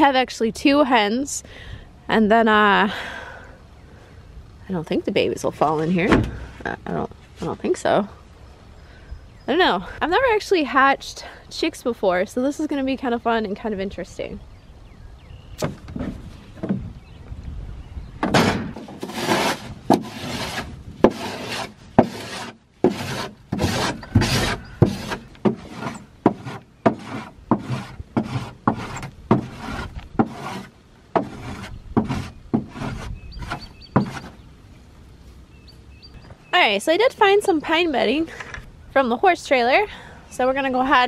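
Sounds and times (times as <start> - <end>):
bedding scraped from plastic compartment: 18.7 - 34.4.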